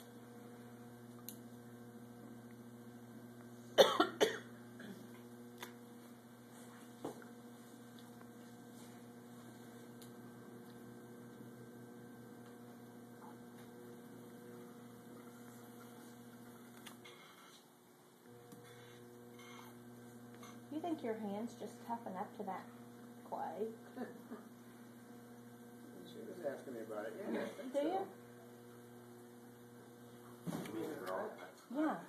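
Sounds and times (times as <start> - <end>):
electric hum: 0.0 - 32.0
person coughing: 3.8 - 5.1.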